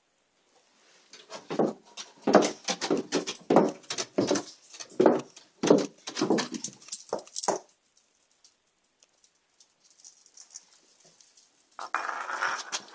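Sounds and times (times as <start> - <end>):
footsteps down wooden stairs: 1.2 - 7.7.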